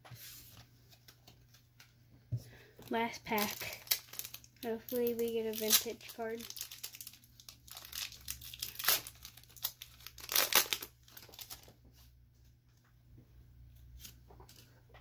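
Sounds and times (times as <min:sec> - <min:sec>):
foil wrapper tearing and crinkling: 0:02.9 - 0:11.7.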